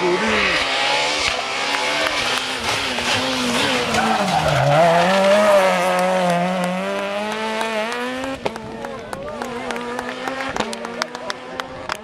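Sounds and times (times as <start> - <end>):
car engine at high revs: 0.0 - 12.0.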